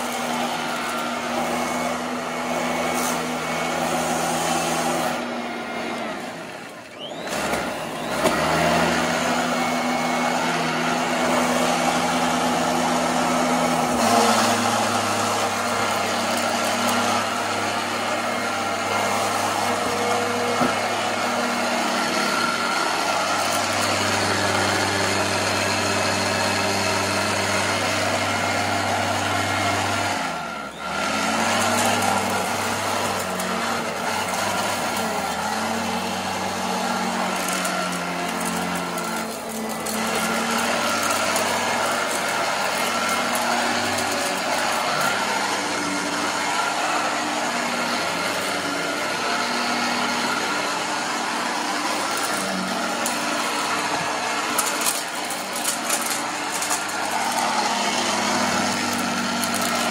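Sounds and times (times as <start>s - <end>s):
vacuum cleaner running: 0.0s - 59.9s.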